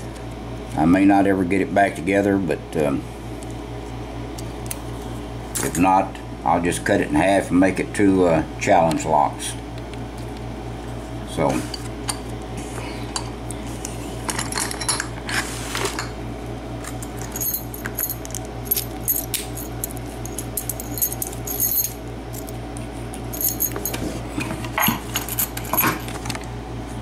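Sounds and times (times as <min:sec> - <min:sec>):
steady low hum: 0:00.0 - 0:27.0
keys jingling on ring: 0:17.0 - 0:22.6, 0:23.2 - 0:24.0, 0:24.8 - 0:26.0.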